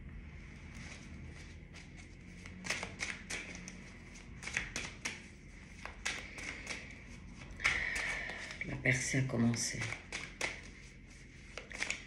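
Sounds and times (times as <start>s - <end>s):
cards clicking and tapping on table: 2.4s - 8.6s, 9.6s - 10.8s, 11.5s - 12.0s.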